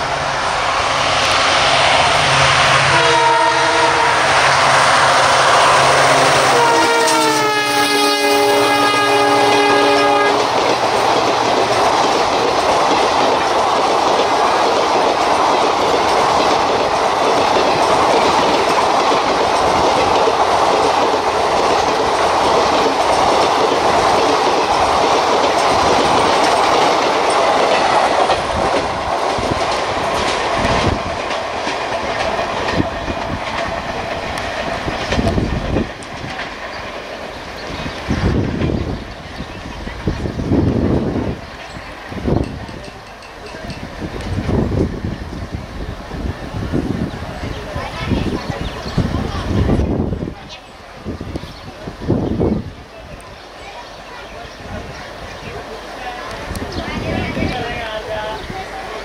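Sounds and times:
train wheels clickety-clack: 1.1 - 45.7
locomotive horn chord: 2.8 - 4.6, 6.2 - 10.5.

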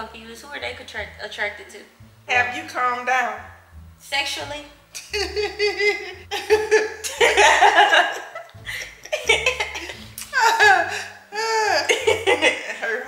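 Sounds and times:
women laughing hard: 5.1 - 12.8.

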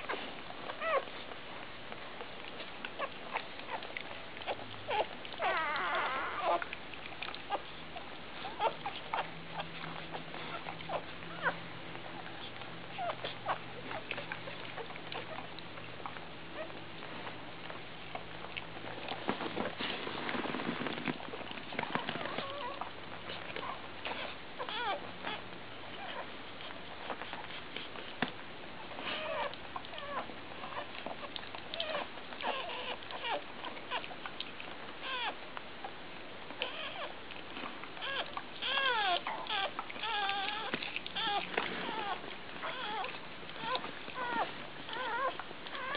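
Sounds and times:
puppies squeaking and whimpering: 0.0 - 1.4, 2.2 - 45.9
rustling noise: 16.7 - 35.0, 37.1 - 45.9.

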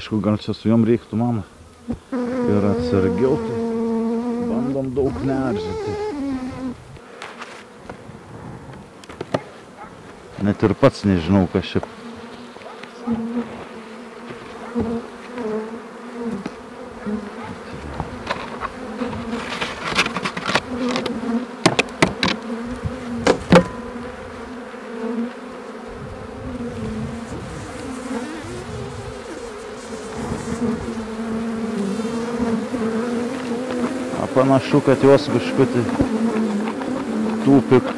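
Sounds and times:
honeybees buzzing: 0.0 - 37.9
sharp clicks and knocks: 18.0 - 22.4.

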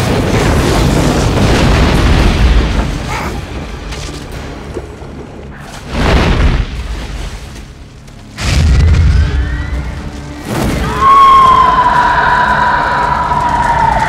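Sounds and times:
explosion booms: 0.0 - 3.7, 5.9 - 7.0
dramatic film music: 0.0 - 14.0.

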